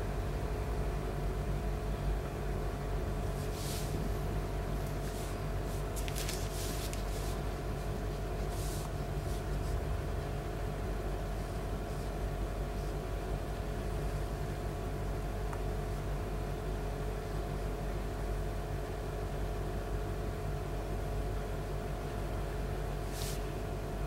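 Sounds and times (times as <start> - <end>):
low room hum: 0.0 - 24.0
ink brush swishing on paper: 3.2 - 4.2, 4.8 - 9.8, 23.0 - 23.5.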